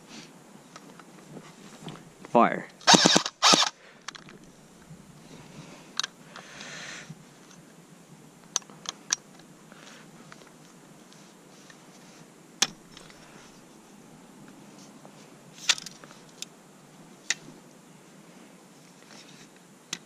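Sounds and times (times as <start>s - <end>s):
airsoft gun burst: 2.8s - 3.8s
gun clicks and parts rattling: 2.9s - 4.5s, 12.6s - 13.2s, 15.6s - 16.5s.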